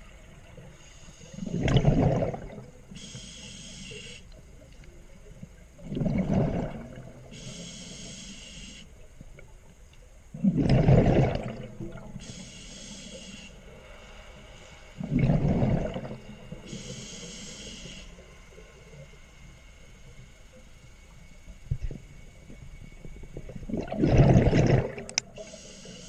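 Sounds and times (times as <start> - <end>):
exhaled bubbles rushing: 1.4 - 2.8, 5.8 - 7.3, 10.4 - 12.2, 15.0 - 16.6, 23.3 - 25.4
regulator hissing: 3.0 - 4.3, 12.2 - 13.6.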